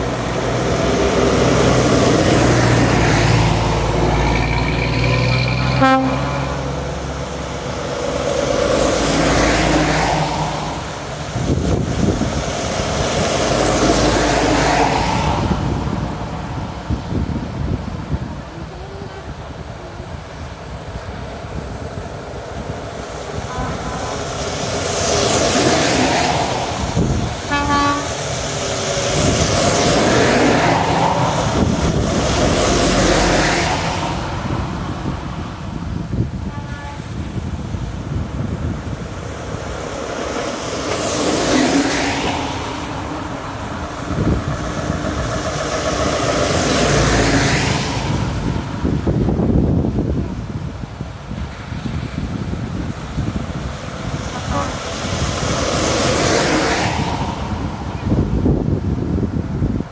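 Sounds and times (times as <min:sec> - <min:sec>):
heavy lorries driving past: 0:00.0 - 0:59.9
truck horn toot: 0:05.6 - 0:06.7, 0:27.5 - 0:28.2, 0:36.4 - 0:37.2, 0:54.3 - 0:54.9.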